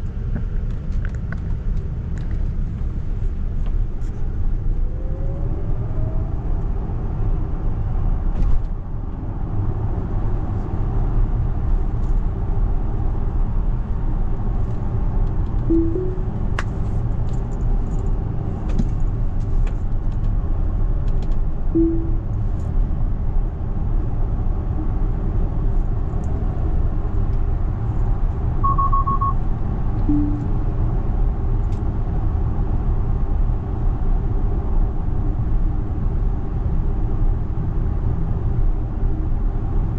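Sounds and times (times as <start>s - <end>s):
road and tyre rumble: 0.0s - 39.9s
high beeps: 15.7s - 16.6s, 21.8s - 22.3s, 28.6s - 29.4s, 30.1s - 30.7s
short electronic tones: 15.7s - 16.6s, 21.8s - 22.3s, 28.6s - 29.4s, 30.1s - 30.7s.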